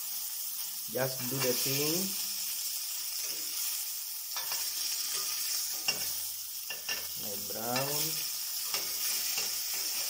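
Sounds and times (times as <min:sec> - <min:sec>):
burger patty sizzling in oil: 0:00.0 - 0:10.0
metal spatula scraping pan: 0:03.2 - 0:10.0.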